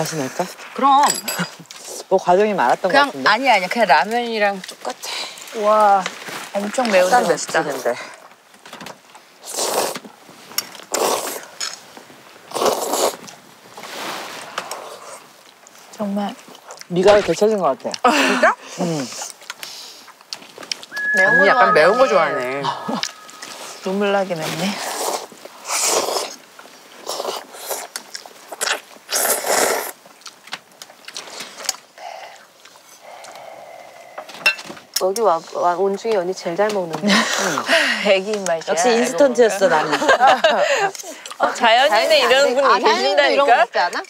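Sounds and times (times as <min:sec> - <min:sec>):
noodles being slurped: 0:09.4 - 0:10.0, 0:12.5 - 0:13.3, 0:27.0 - 0:30.0
person slurping noodles: 0:09.4 - 0:10.0, 0:10.9 - 0:11.4, 0:12.5 - 0:13.2, 0:24.8 - 0:26.4, 0:28.6 - 0:30.0.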